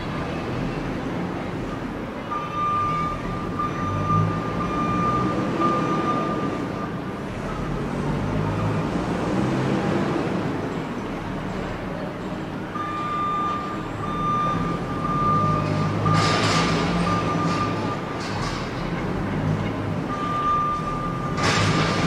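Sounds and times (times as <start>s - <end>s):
heavy vehicle running: 0.0s - 22.0s
road traffic noise: 0.0s - 22.0s.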